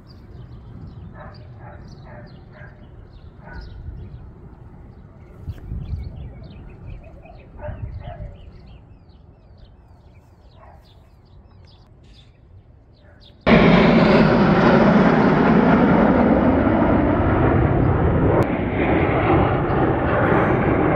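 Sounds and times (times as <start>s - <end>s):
jet engines overhead: 0.0s - 20.9s
faint bird chirps: 5.0s - 13.4s.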